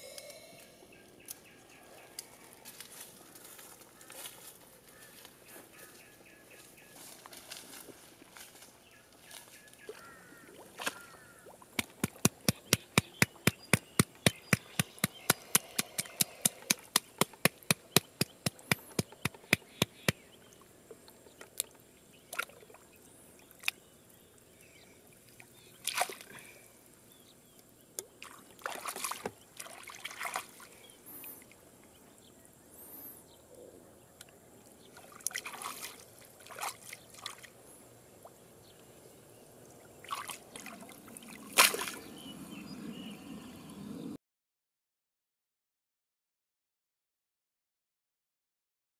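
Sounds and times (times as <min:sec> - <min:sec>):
water splashing and sloshing: 0:07.0 - 0:27.0, 0:28.0 - 0:31.6, 0:34.8 - 0:37.7, 0:39.6 - 0:42.2
rapid sharp clicks: 0:11.8 - 0:20.2.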